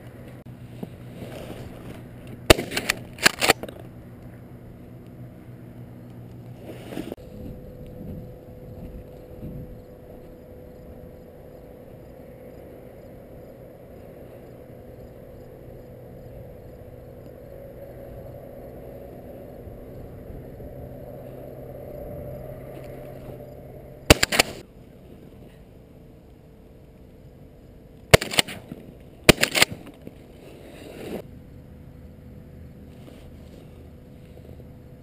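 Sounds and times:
outdoor background: 0.0 - 35.0
shotgun blasts: 2.5 - 3.5, 24.1 - 24.6, 28.1 - 28.6, 29.3 - 29.8.

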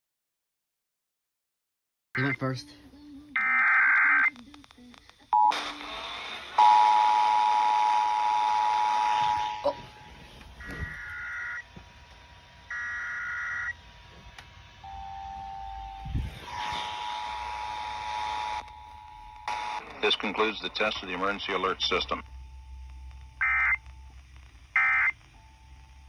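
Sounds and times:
digital data tone bursts: 6.5 - 11.6, 14.9 - 26.0
two-tone attention signal: 6.6 - 11.6
faint steady tone: 14.8 - 26.0.

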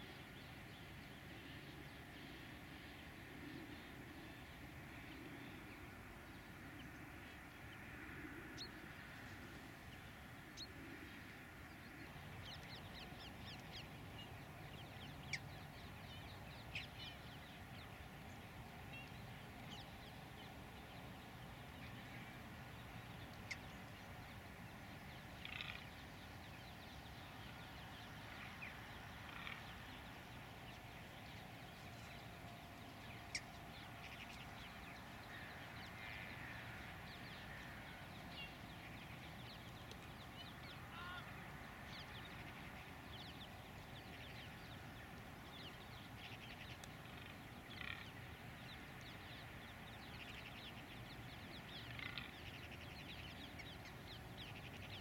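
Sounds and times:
low outdoor background: 0.0 - 55.0
faint bird calls: 27.5 - 43.1.

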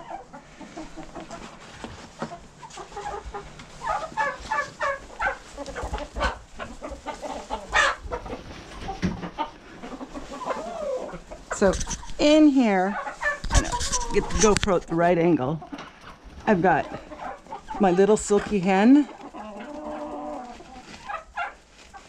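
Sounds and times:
chickens clucking: 0.0 - 22.0
chicken squawk: 2.3 - 12.1, 12.9 - 14.2, 19.2 - 22.0.

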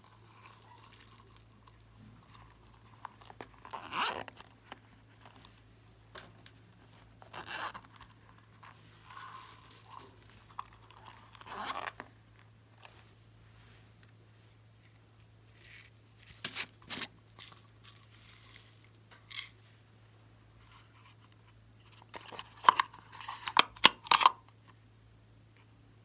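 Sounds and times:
coin purse rustling: 0.0 - 12.1, 15.5 - 19.6
faint steady hum: 0.0 - 26.0.

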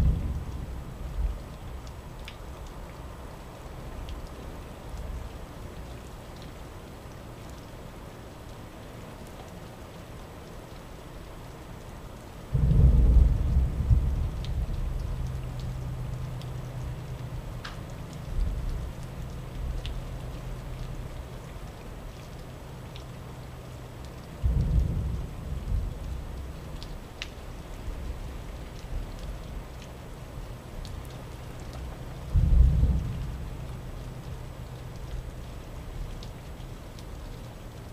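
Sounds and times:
steady rain falling: 0.0 - 37.9
dripping ticks: 0.2 - 37.9
thunder clap rumbling: 12.5 - 15.7, 24.4 - 26.4, 32.3 - 34.3.

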